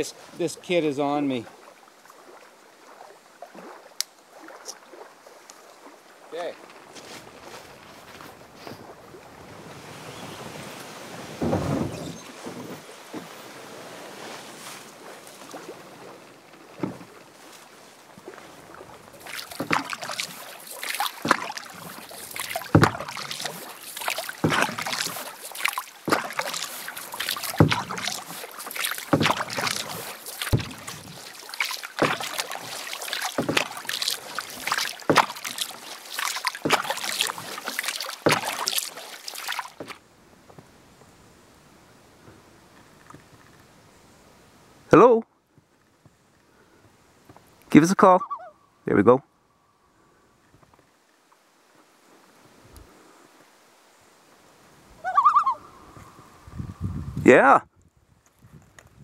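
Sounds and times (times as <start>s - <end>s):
paddle strokes splashing: 0.0s - 41.2s
canoe shoved into water: 9.7s - 17.6s, 18.2s - 40.0s.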